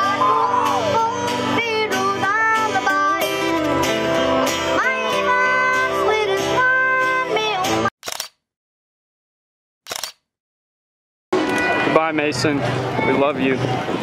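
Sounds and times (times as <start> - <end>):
boy singing: 0.0 - 4.0, 4.7 - 7.9
acoustic guitar strumming: 0.0 - 7.9.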